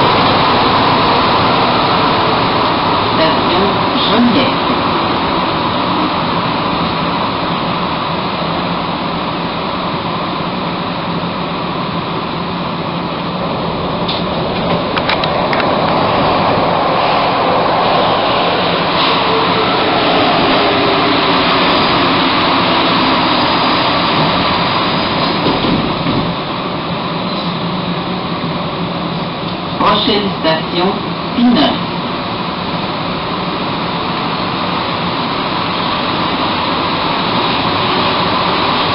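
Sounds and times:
metro train running noise: 0.0 - 38.9
train motor hum: 0.0 - 38.9
train braking: 14.0 - 27.9.

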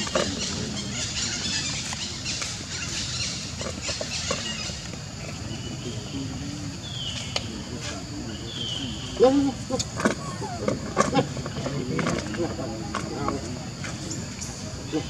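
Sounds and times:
steady outdoor hiss: 0.0 - 15.0
faint high falling calls: 9.9 - 11.4.

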